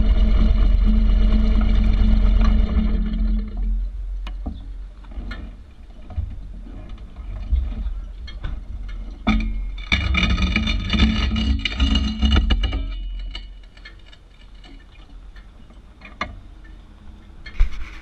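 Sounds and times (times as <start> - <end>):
clicks and knocks: 2.4 - 16.4.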